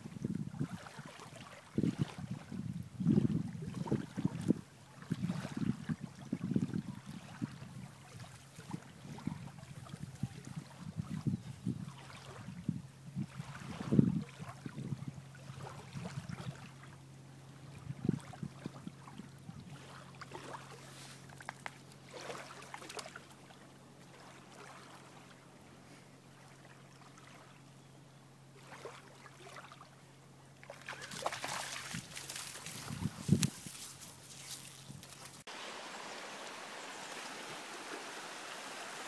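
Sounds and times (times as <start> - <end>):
dog splashing in shallow water: 22.0 - 23.2, 30.6 - 34.0
rustling hiss: 31.7 - 39.0.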